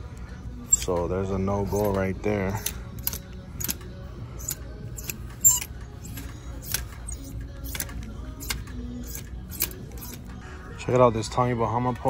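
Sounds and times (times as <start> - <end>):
hangers scraping on metal rack: 0.7 - 3.8, 4.4 - 10.3.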